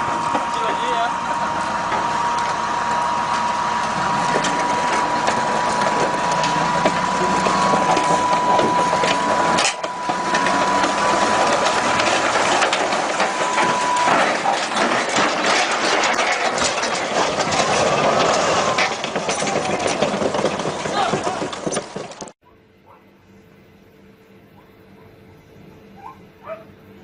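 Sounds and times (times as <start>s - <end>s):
steady high whine: 0.0s - 19.4s
heavy metallic clanks: 0.0s - 22.4s
steel tracks clattering: 0.0s - 22.4s.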